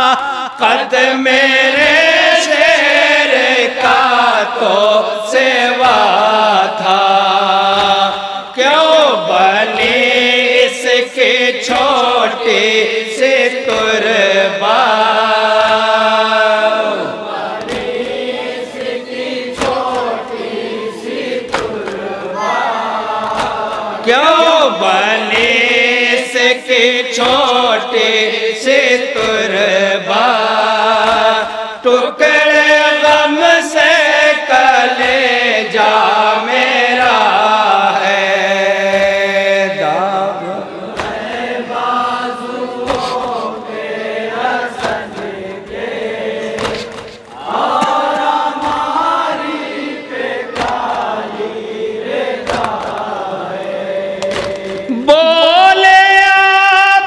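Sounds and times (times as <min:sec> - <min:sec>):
men chanting in unison: 0:00.0 - 0:57.0
hands slapping chests: 0:17.5 - 0:20.4, 0:21.4 - 0:22.2, 0:23.2 - 0:24.0, 0:40.8 - 0:41.7, 0:42.6 - 0:43.8, 0:44.6 - 0:49.5, 0:50.2 - 0:51.4, 0:52.3 - 0:55.0.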